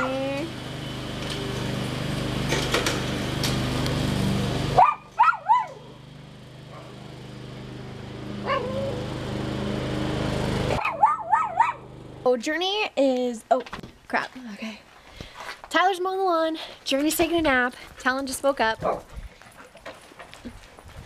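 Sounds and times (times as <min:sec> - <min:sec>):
riding lawn mower engine: 0:00.0 - 0:12.5
dog barking: 0:04.8 - 0:05.9, 0:08.4 - 0:09.0, 0:10.8 - 0:11.8.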